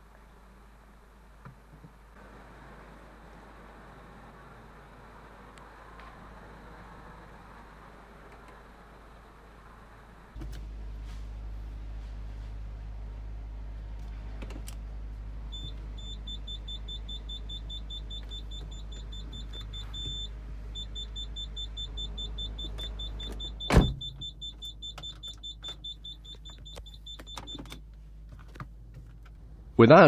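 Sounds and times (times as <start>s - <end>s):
low hum: 10.3s - 27.0s
reverse warning beeps: 15.5s - 27.6s
loud thump: 23.7s - 24.1s.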